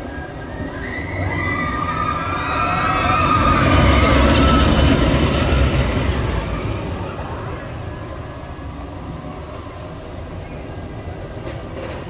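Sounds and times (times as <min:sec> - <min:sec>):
riders screaming: 0:00.0 - 0:08.4
roller coaster rumbling on track: 0:00.0 - 0:12.0.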